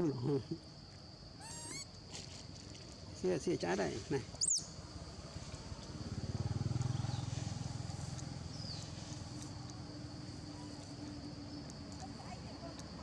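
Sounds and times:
high-pitched insect drone: 0:01.4 - 0:02.0.

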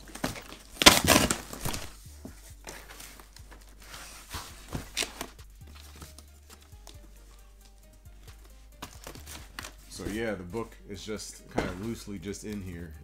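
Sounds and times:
cardboard box ripping: 0:00.0 - 0:02.0
cardboard crinkling and tapping: 0:00.0 - 0:07.0, 0:07.6 - 0:10.7.

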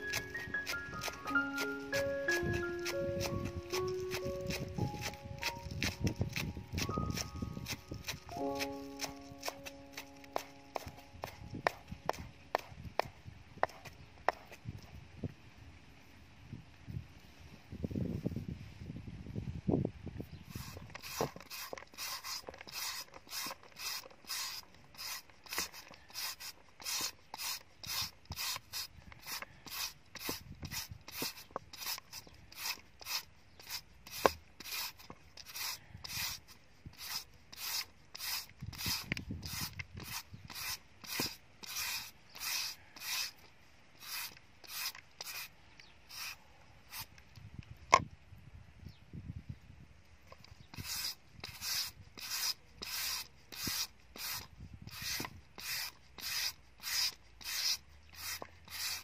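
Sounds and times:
shredder rasping along papaya: 0:00.0 - 0:12.2.

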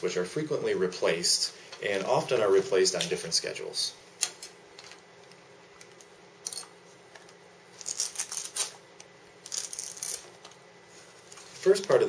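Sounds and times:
plastic rustling: 0:09.4 - 0:12.0.

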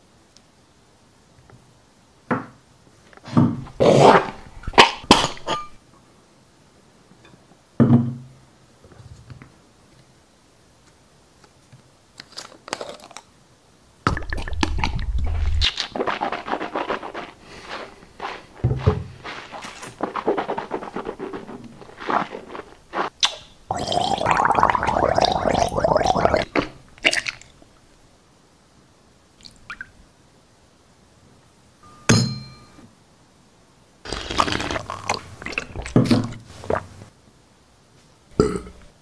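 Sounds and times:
liquid pouring into a glass: 0:23.7 - 0:26.5
sharp glass clink: 0:31.8 - 0:32.8.

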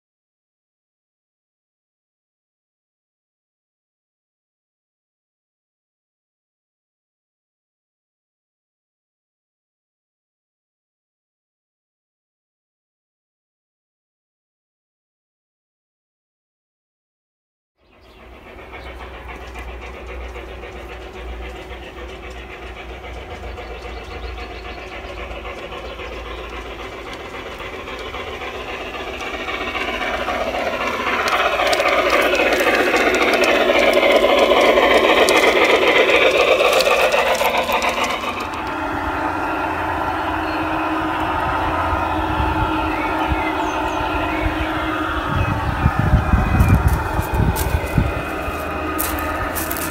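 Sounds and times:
model trains running on track: 0:17.8 - 0:49.9.

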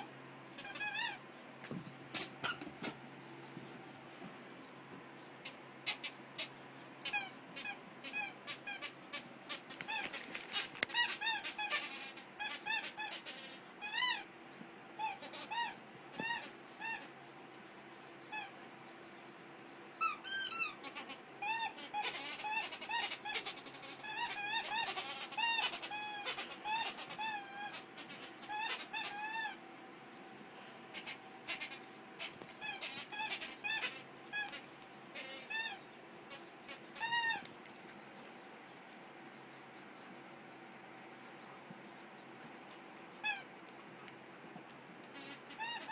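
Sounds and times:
squeaky dog toy: 0:00.0 - 0:01.2, 0:02.1 - 0:03.0, 0:07.0 - 0:14.3, 0:15.0 - 0:17.1, 0:20.0 - 0:29.6, 0:31.5 - 0:34.6, 0:35.2 - 0:35.8, 0:37.0 - 0:37.5, 0:43.2 - 0:43.5, 0:45.2 - 0:45.9.

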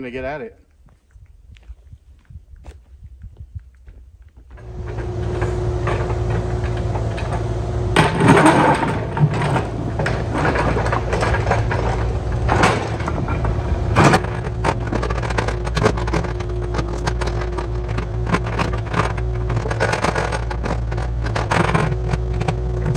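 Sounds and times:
machine engine humming: 0:04.5 - 0:22.9
machine clanking: 0:04.6 - 0:22.9.

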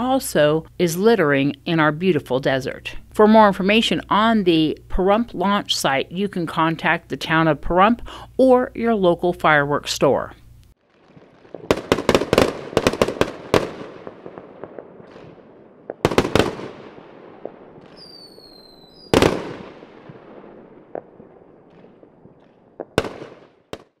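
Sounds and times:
fireworks bangs: 0:10.8 - 0:24.0
firework whistle falling in pitch: 0:18.0 - 0:19.1.

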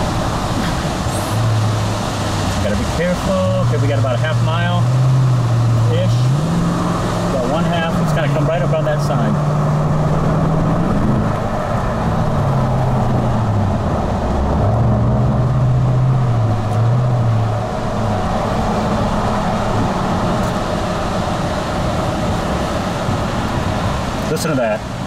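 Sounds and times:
car engine hum: 0:00.0 - 0:25.0
road noise rushing: 0:00.0 - 0:25.0.

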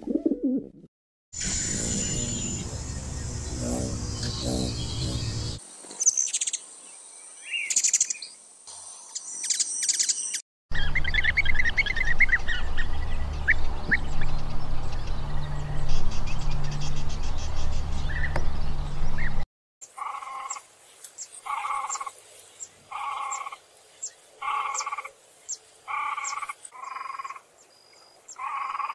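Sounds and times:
steady low rumble: 0:01.4 - 0:05.6
small birds chirping: 0:01.6 - 0:28.9.

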